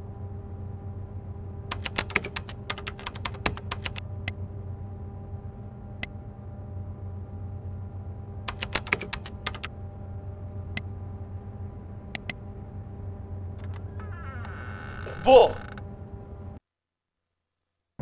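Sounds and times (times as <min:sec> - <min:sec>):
steady low hum: 0:00.0 - 0:16.6
keyboard key clicks: 0:01.7 - 0:04.0, 0:08.5 - 0:09.7.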